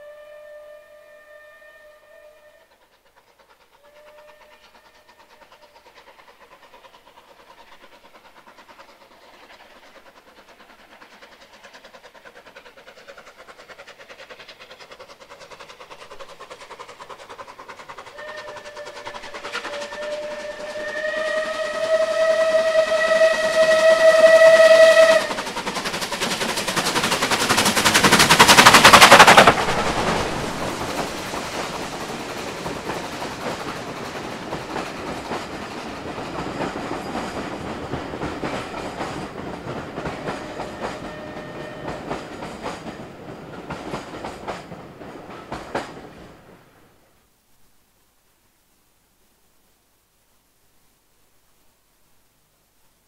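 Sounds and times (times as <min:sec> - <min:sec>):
steam whistle: 0:00.0 - 0:02.9, 0:03.7 - 0:05.7, 0:18.1 - 0:25.5, 0:40.0 - 0:42.3
steam locomotive exhaust: 0:00.0 - 0:47.1.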